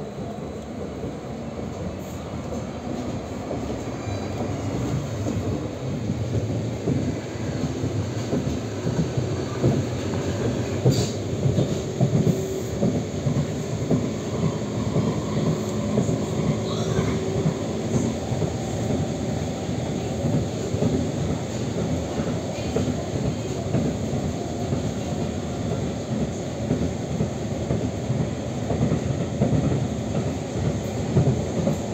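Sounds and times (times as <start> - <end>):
train wheels rumbling on rails: 0.0 - 31.9.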